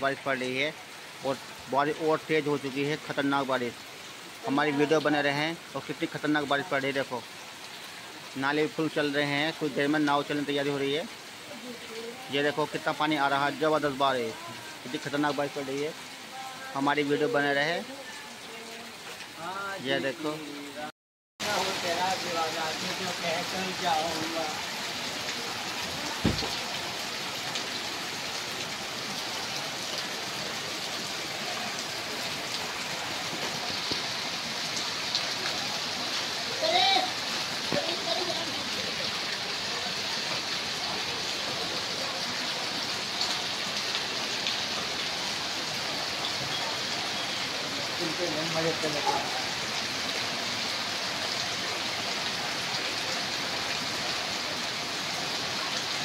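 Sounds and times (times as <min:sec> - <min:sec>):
heavy rain pouring: 0:00.0 - 0:56.0
single thump: 0:26.2 - 0:26.6.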